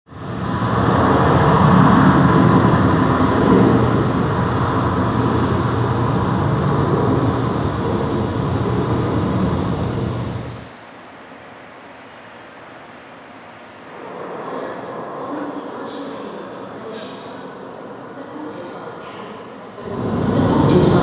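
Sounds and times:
engine-like rumble with low drone: 0.1s - 10.7s, 19.8s - 21.0s.

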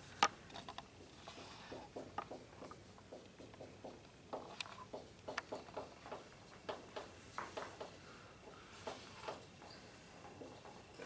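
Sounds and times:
marker squeaking on whiteboard: 1.0s - 8.0s.

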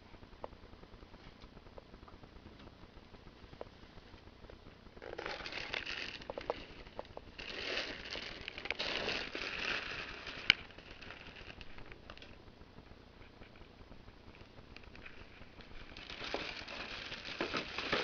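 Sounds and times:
dry hay rustling and crackling: 5.0s - 12.4s, 14.6s - 18.0s.

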